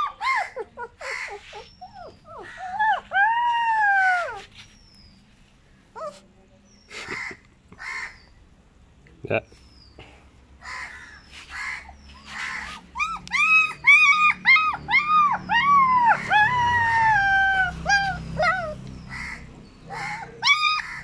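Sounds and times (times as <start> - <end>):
puppy whimpering and whining: 0.0 - 4.9, 6.0 - 6.2, 12.2 - 18.9, 20.0 - 21.0.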